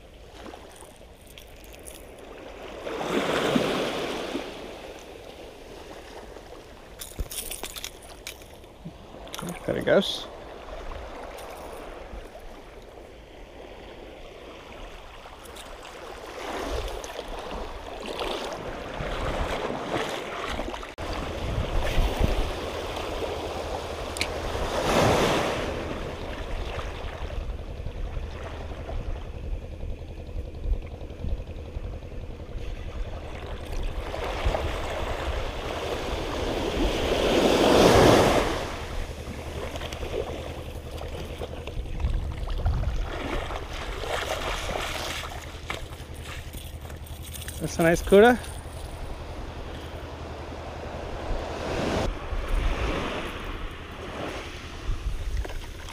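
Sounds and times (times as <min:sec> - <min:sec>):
small waves washing: 0:00.0 - 0:55.9
wind noise on microphone: 0:21.0 - 0:22.7, 0:41.6 - 0:43.8, 0:54.5 - 0:55.8.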